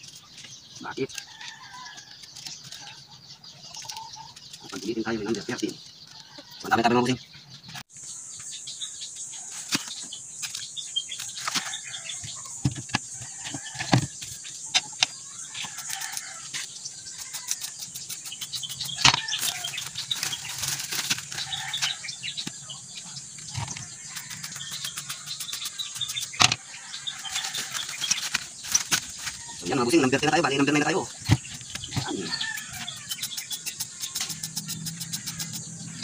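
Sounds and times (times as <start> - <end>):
plastic sack crinkling: 19.3 - 21.9, 27.3 - 29.5.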